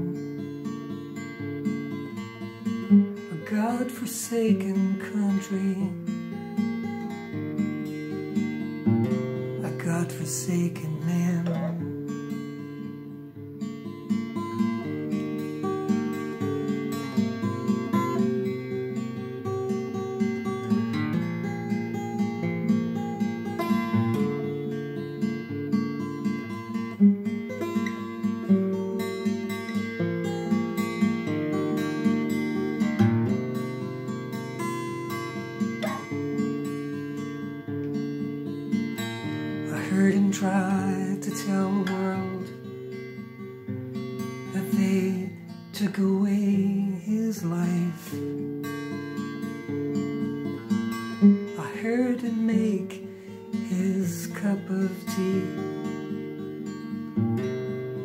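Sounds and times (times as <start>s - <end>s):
acoustic guitar strumming chords: 0.0s - 58.0s
man singing: 3.3s - 6.2s, 9.6s - 11.9s, 39.6s - 42.7s, 44.4s - 48.4s, 51.6s - 56.0s.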